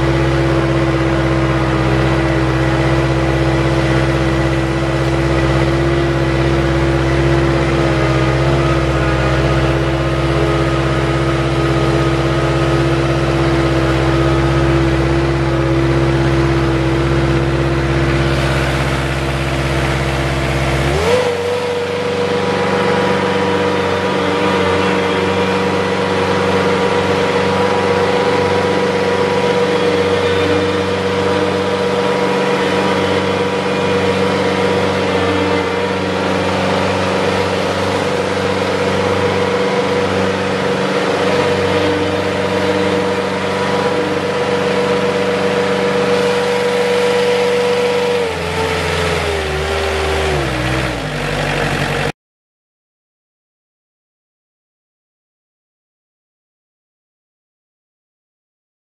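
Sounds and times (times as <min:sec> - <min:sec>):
diesel mower engine running: 0:00.0 - 0:52.2.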